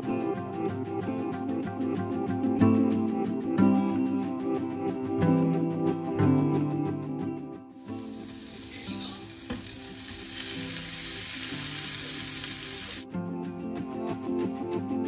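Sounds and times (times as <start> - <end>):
soft background music: 0.0 - 15.0
potatoes sizzling in a frying pan: 7.8 - 13.0.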